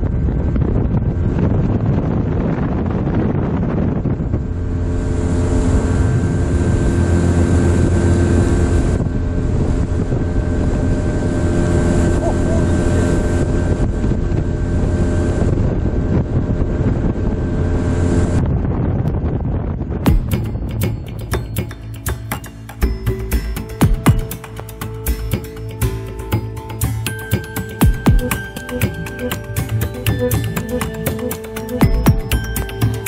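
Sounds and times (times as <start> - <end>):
wind buffeting the microphone: 0.0 - 21.6
motorboat engine running: 0.0 - 33.0.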